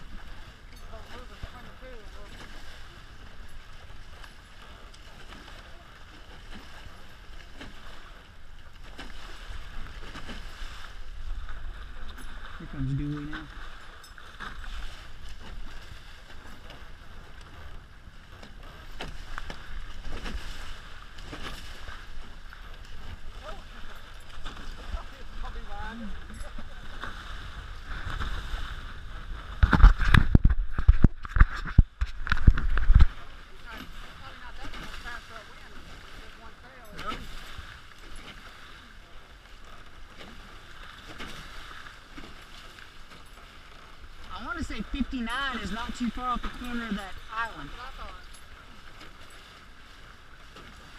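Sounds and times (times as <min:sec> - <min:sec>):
water rushing along hull: 0:00.0 - 0:50.9
wave slaps and spray: 0:00.0 - 0:50.9
wind rumble on microphone: 0:09.2 - 0:35.3.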